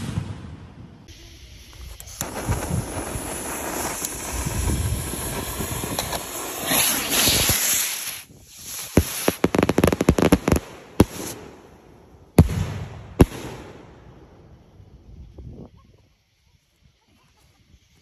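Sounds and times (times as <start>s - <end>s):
rockets bursting with pops: 0.0s - 15.8s
rockets launching with fiery hiss: 0.0s - 18.0s
loud firework bangs: 12.3s - 14.2s.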